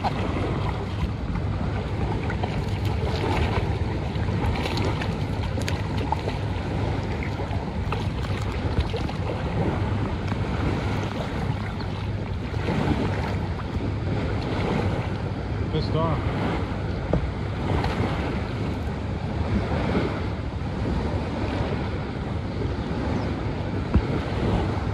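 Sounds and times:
lake water lapping: 0.0 - 24.9
wind buffeting microphone: 0.0 - 24.9.

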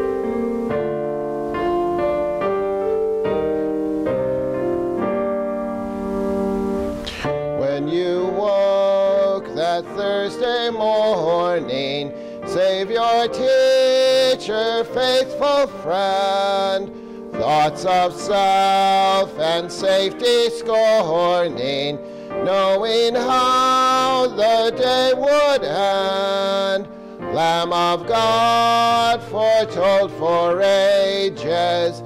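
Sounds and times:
piano playing chords: 0.0 - 32.0
voices singing a hymn: 7.6 - 32.0.

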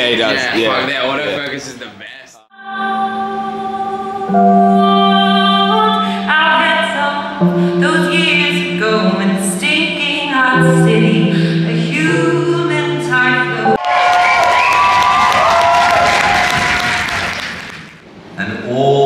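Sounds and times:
electric keyboard chords: 2.5 - 13.8
woman singing: 2.5 - 13.8.

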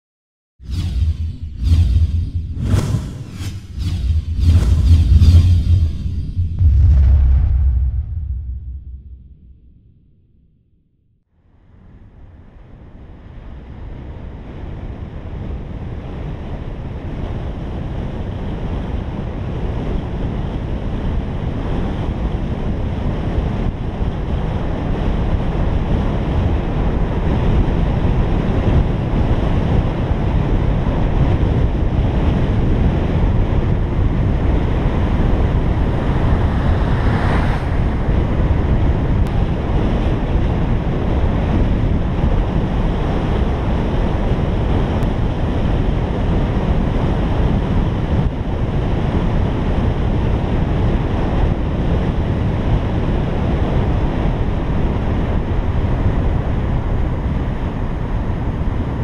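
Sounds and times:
wind and road noise in a car: 11.5 - 59.0.

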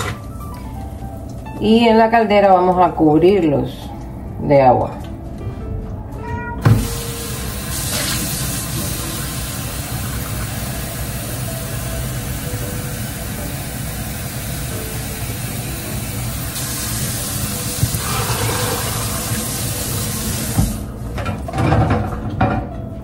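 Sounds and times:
tap water running into a pot: 6.7 - 20.9.

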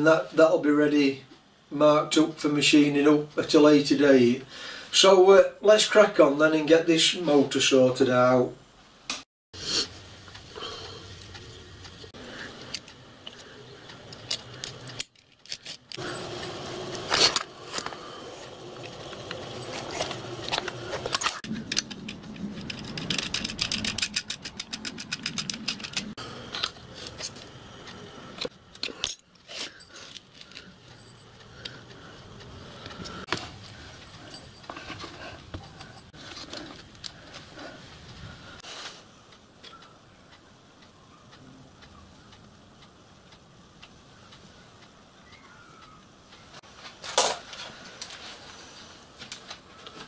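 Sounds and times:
metal parts and tools clinking: 14.1 - 27.4, 28.4 - 31.4, 33.0 - 37.1.

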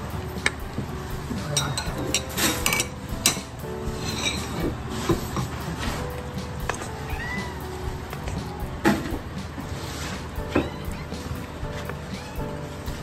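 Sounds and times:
metal bowls clinking and scraping: 1.4 - 6.1.

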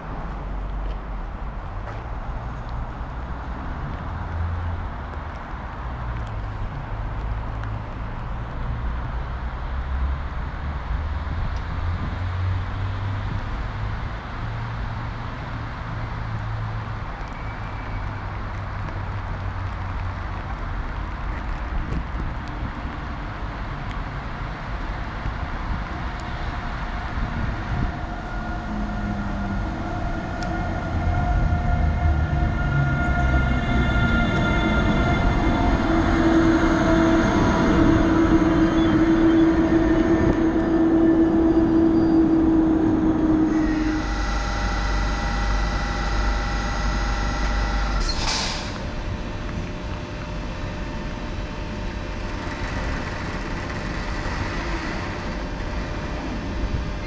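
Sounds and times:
train rolling rumble: 0.0 - 57.0
heavy low rumble: 18.8 - 57.0
wheel and brake squealing: 27.7 - 48.9
short loud hiss: 48.0 - 48.9.

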